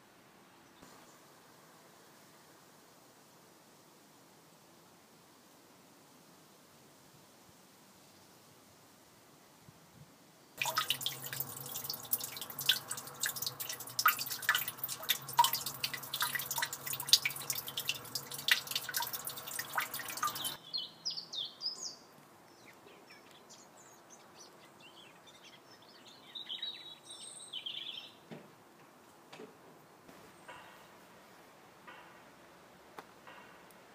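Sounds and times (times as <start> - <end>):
water trickling and dripping: 10.6 - 20.6
birds chirping: 10.6 - 28.2.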